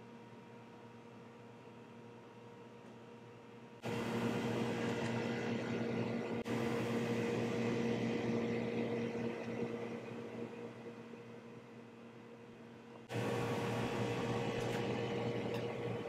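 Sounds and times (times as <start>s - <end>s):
machine hum with hiss: 3.8s - 16.0s.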